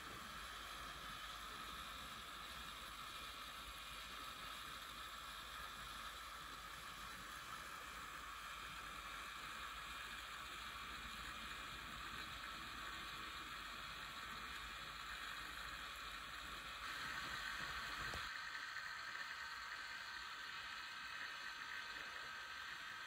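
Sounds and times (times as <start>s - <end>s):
electric motors whirring propellers: 15.4s - 23.0s.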